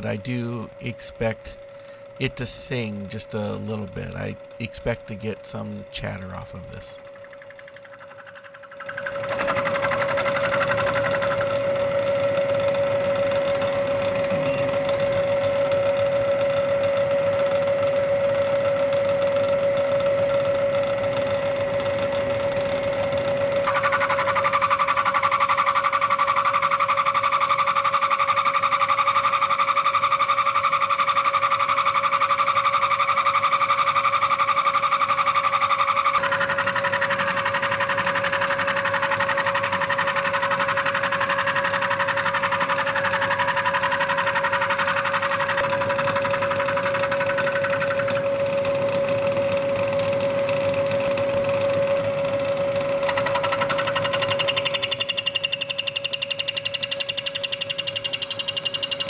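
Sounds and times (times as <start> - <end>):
high chatter tone of cutting: 0.0 - 12.8, 23.3 - 49.0, 53.0 - 59.0
milling spindle whine: 0.0 - 59.0.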